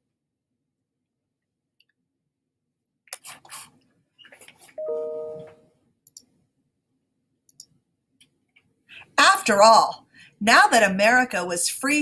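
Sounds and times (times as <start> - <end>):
rustling and handling noise: 3.2 - 5.6
two-tone chime: 4.8 - 5.6.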